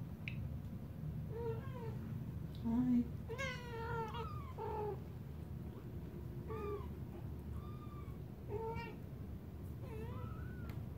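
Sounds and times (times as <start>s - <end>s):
kittens mewing: 3.3s - 5.1s, 6.4s - 9.0s.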